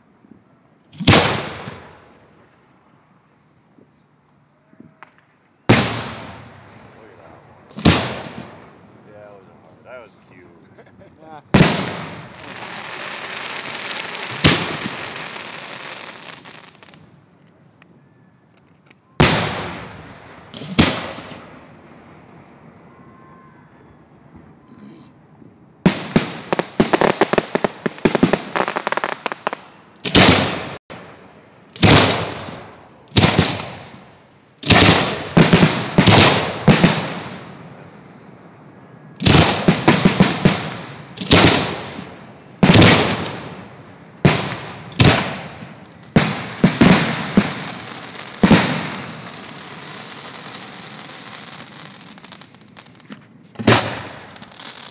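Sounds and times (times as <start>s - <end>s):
fireworks bursting: 0.9s - 2.3s, 4.9s - 17.1s, 19.1s - 22.0s, 25.8s - 37.6s, 39.2s - 54.9s
loud firework bangs: 1.0s - 2.1s, 5.0s - 8.8s, 11.5s - 16.4s, 19.2s - 21.8s, 25.8s - 31.2s, 31.8s - 37.6s, 39.2s - 52.5s, 53.6s - 54.9s.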